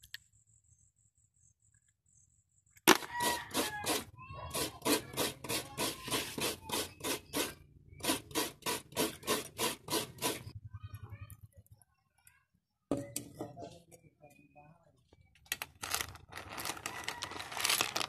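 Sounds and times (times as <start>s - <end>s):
coconut grating rasps: 2.9s - 10.6s, 15.8s - 18.0s.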